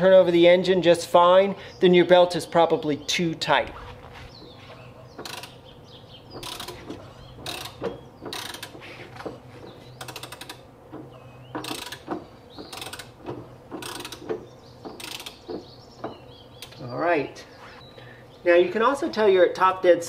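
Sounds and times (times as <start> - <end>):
ratchet clicking: 5.2 - 5.6, 6.4 - 9.3, 10.0 - 15.7.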